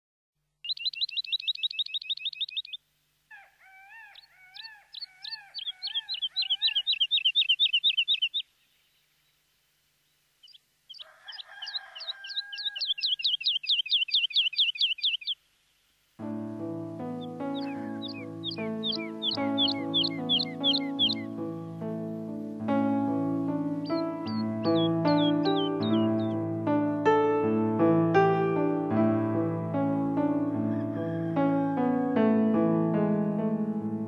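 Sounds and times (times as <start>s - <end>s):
bird trilled chirping: 0.6s - 2.8s, 4.2s - 9.0s, 10.4s - 15.4s, 17.1s - 21.4s, 23.8s - 26.4s
lower-pitched bird calling: 0.6s - 9.4s, 10.4s - 15.4s, 17.2s - 21.4s, 23.8s - 26.4s
music: 16.2s - 34.0s.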